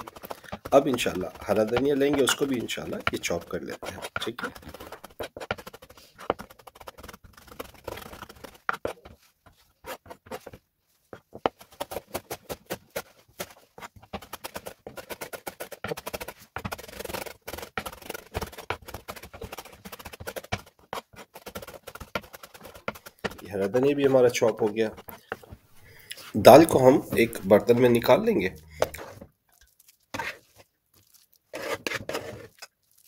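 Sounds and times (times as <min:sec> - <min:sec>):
knife chopping on cutting board: 0:00.0 - 0:06.4.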